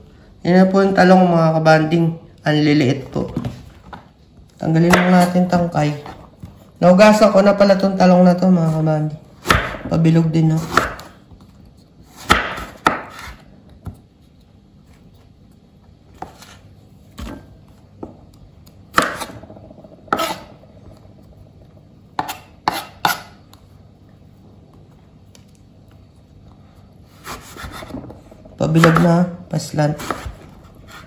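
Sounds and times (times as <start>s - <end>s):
knife slicing on wooden board: 22.2s - 23.4s, 27.2s - 28.0s.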